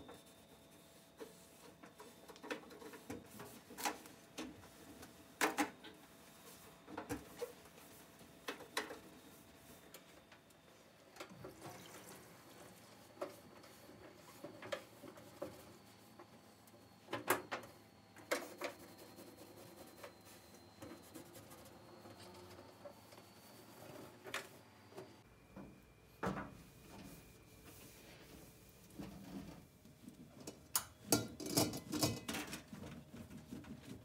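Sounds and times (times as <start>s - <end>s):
cloth wiping stovetop: 26.6s - 30.1s.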